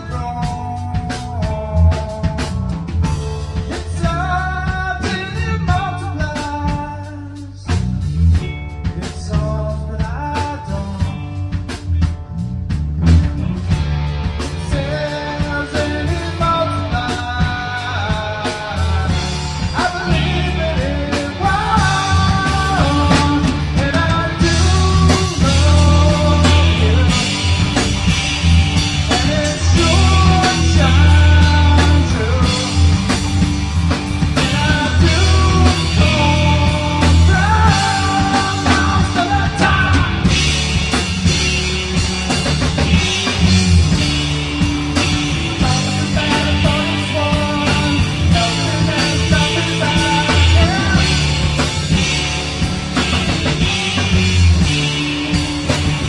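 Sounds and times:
bass guitar: 0:00.0 - 0:56.0
drums: 0:00.0 - 0:56.0
electric guitar: 0:00.0 - 0:56.0
person singing: 0:03.7 - 0:07.8, 0:14.6 - 0:28.0, 0:28.9 - 0:33.2, 0:34.3 - 0:40.6, 0:45.4 - 0:51.7.

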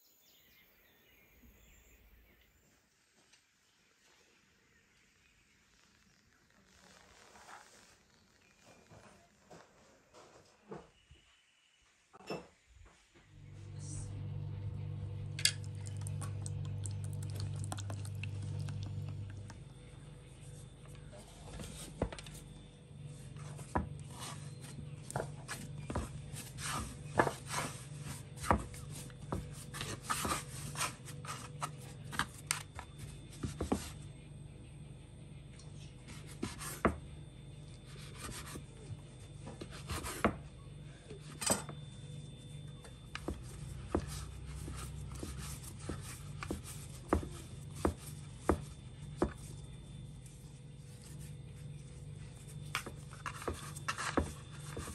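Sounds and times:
soft rubbing of dough: 0:05.4 - 0:10.6, 0:17.8 - 0:34.3, 0:35.7 - 0:54.9.

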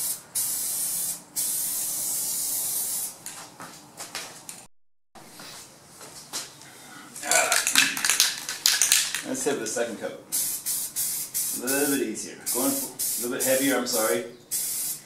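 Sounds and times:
aerosol spray can hissing: 0:00.0 - 0:03.2, 0:10.4 - 0:15.0
footsteps: 0:03.2 - 0:04.7, 0:05.3 - 0:06.6.

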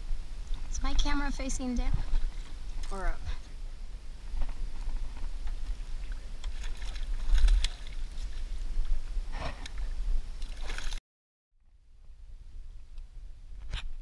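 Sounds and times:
fish splashing at water surface: 0:06.4 - 0:08.0.

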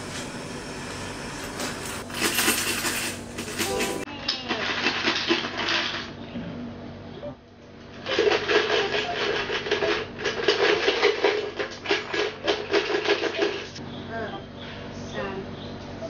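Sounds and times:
coins rattling in a coin bank: 0:01.4 - 0:06.1, 0:08.0 - 0:13.7.

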